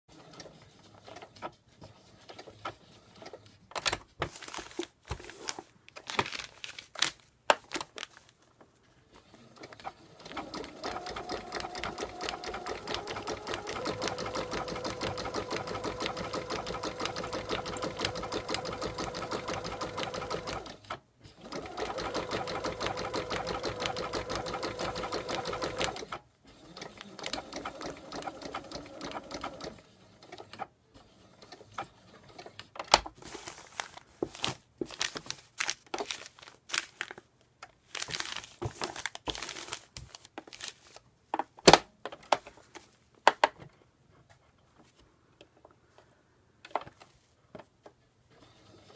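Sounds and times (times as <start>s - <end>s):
sewing machine stitching: 9.3s - 32.7s.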